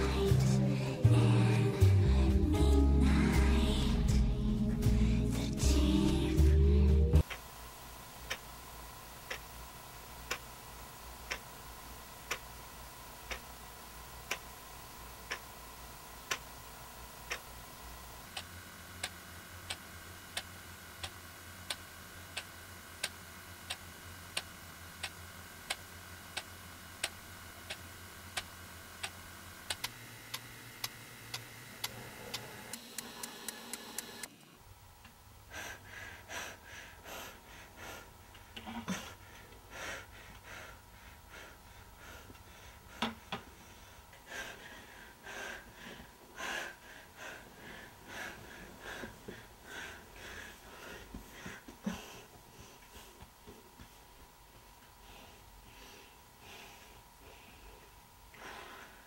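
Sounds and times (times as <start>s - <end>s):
low droning hum: 0.0s - 7.3s
clock ticking: 10.2s - 10.5s, 11.2s - 11.5s, 12.2s - 12.5s, 13.3s - 13.6s, 15.3s - 15.5s.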